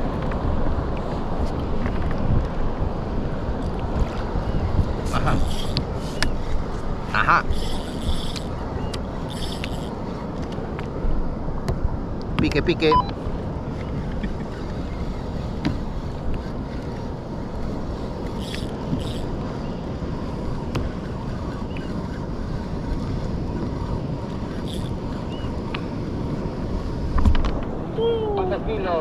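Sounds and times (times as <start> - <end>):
wind buffeting the microphone: 0.0 - 29.0
choppy water against a kayak: 13.2 - 28.4.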